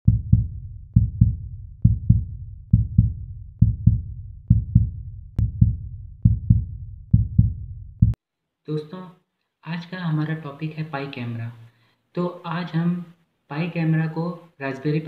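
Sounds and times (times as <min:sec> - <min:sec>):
double bass thumping music: 0:00.1 - 0:08.2.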